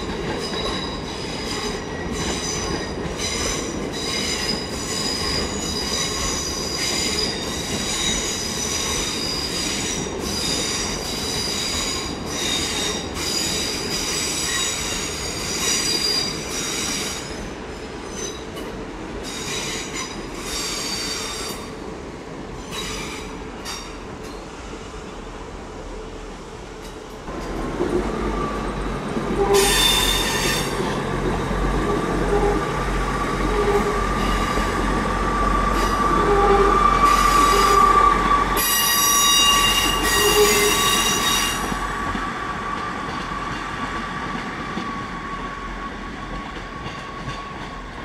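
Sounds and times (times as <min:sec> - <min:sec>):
rumble of wheels on rail: 0:00.0 - 0:48.0
train wheels squealing: 0:00.2 - 0:18.6, 0:19.2 - 0:21.7, 0:22.6 - 0:24.6, 0:29.4 - 0:31.0, 0:33.2 - 0:41.9.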